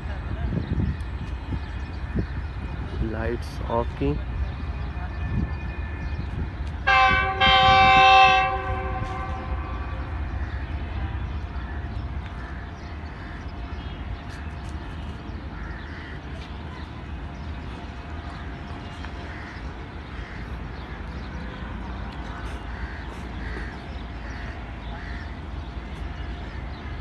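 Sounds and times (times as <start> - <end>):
locomotive rumble: 0.0 - 27.0
locomotive horn: 6.8 - 10.4.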